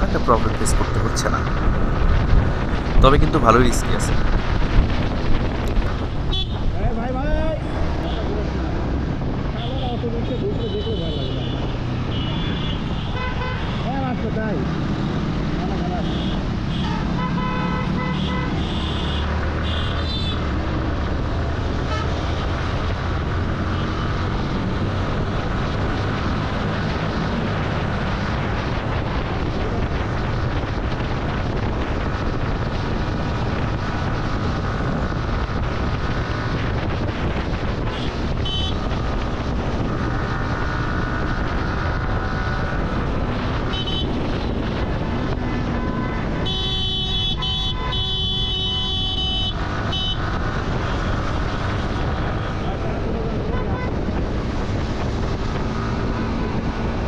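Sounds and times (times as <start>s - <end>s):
wind rush on microphone: 0.0s - 57.0s
vehicle horns honking: 6.3s - 6.6s, 9.6s - 13.9s, 16.0s - 20.4s, 21.9s - 22.2s, 37.9s - 38.9s, 43.7s - 44.2s, 45.6s - 50.3s, 53.5s - 54.0s.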